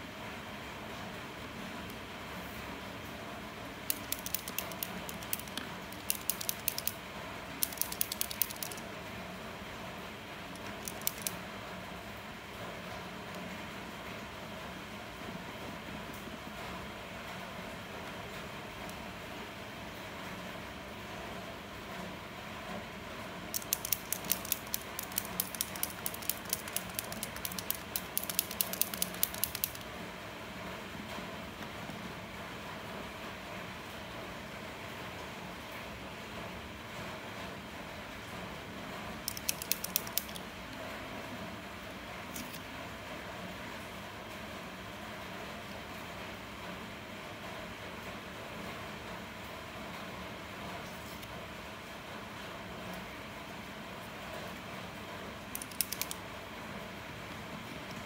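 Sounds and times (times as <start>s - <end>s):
steady background hiss: 0.0s - 58.0s
paint marker ball rattling: 3.9s - 7.0s, 7.6s - 8.8s, 10.6s - 11.4s, 23.6s - 29.8s, 39.3s - 40.4s.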